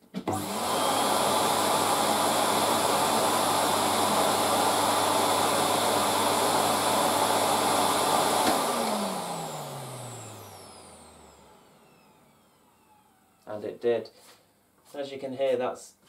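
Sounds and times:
vacuum cleaner motor running: 0.2 - 13.5.

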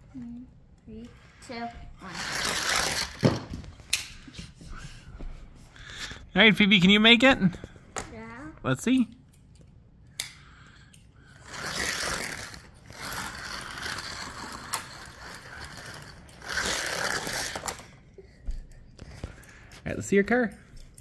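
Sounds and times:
small electric motor whirring: 2.0 - 3.3, 11.3 - 17.9.

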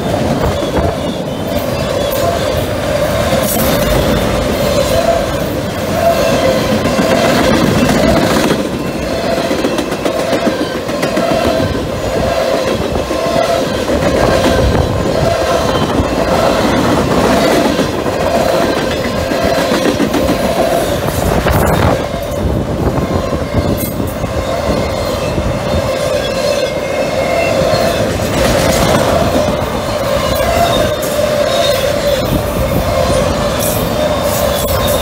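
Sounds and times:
train wheels rumbling on rail: 0.0 - 35.0
high ringing tone: 0.4 - 10.9, 21.3 - 35.0.

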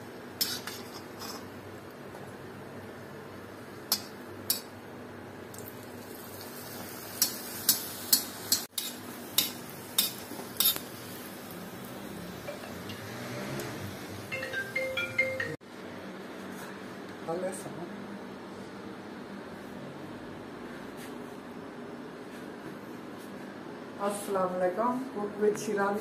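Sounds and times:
metal spatula tapping and scraping: 0.4 - 1.5, 3.9 - 4.7, 7.2 - 10.9
food sizzling in hot oil: 5.5 - 14.3.

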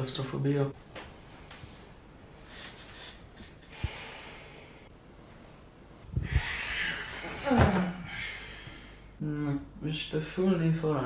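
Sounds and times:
person groaning: 6.2 - 8.4.

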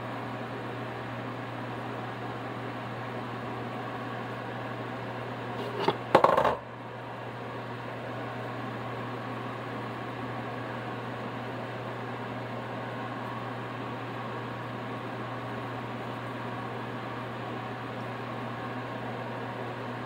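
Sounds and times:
fan-like hum: 0.0 - 20.0.

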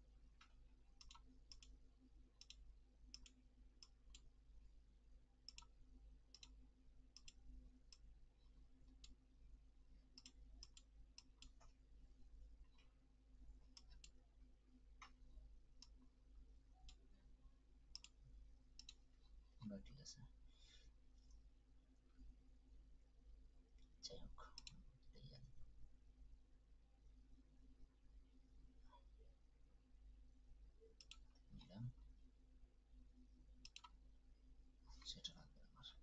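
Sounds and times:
low electrical hum: 0.0 - 36.0
computer mouse clicks: 0.4 - 1.8, 2.4 - 4.3, 5.5 - 6.6, 7.2 - 8.1, 10.1 - 11.8, 13.7 - 14.2, 17.9 - 18.2, 18.8 - 19.0, 24.6 - 24.8, 30.8 - 31.8, 33.6 - 34.0.

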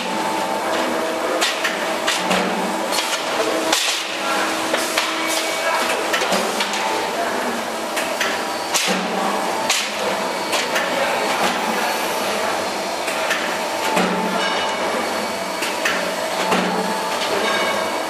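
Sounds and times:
press machine hum: 0.0 - 18.0.

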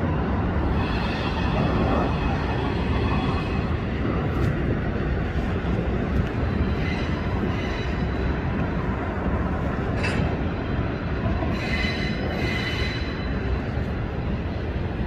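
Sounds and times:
freight train rumbling past: 0.0 - 15.0.

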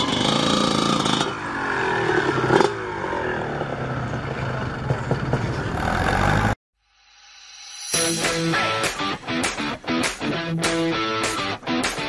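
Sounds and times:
motocross bike engines revving: 0.0 - 6.6.

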